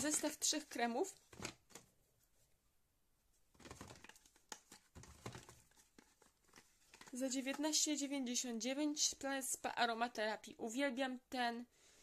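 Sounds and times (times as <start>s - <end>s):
packaging rustling and clicking: 1.2s - 1.9s, 3.5s - 7.7s.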